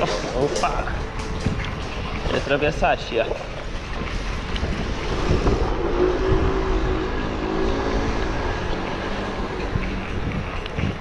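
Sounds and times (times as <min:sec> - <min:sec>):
wind rumble on microphone: 0:00.0 - 0:11.0
vehicle engine passing: 0:04.2 - 0:11.0.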